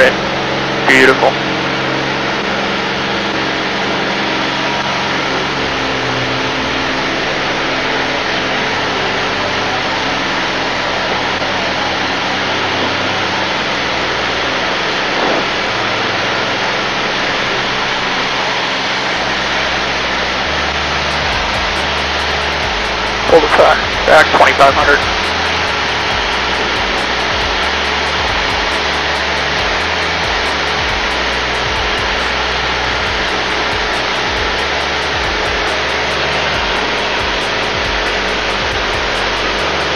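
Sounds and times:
propeller aircraft engine drone: 0.0s - 39.9s.

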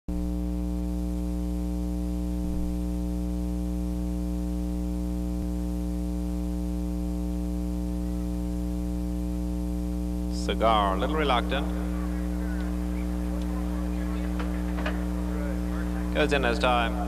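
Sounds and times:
electrical mains hum: 0.1s - 17.0s
constant hiss: 6.3s - 17.0s.

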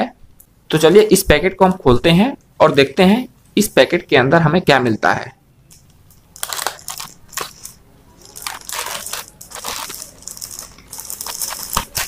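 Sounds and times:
plastic mailer tearing and crinkling: 6.3s - 12.0s.

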